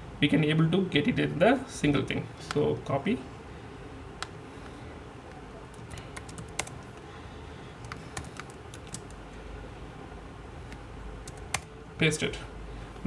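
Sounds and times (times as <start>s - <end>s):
faint room hum: 0.0s - 13.0s
keyboard and mouse clicks: 7.8s - 9.2s.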